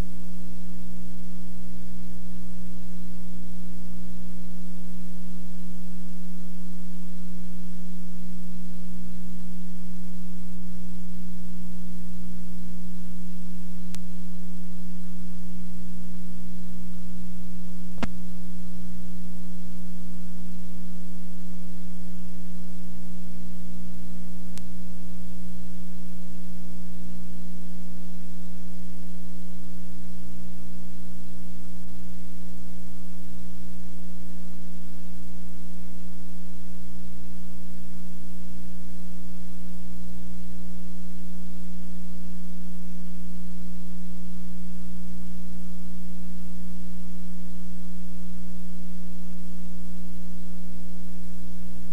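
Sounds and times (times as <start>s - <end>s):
loud electrical hum: 0.0s - 51.9s.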